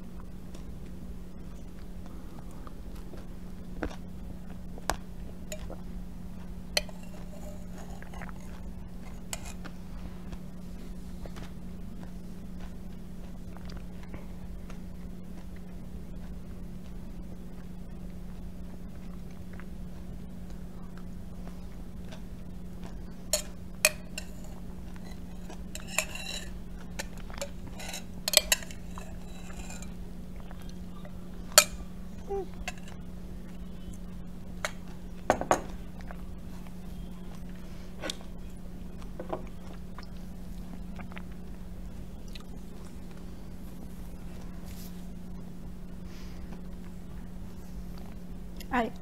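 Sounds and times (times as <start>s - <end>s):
spoon clinking against glass: 6.8s - 8.2s, 23.3s - 29.9s.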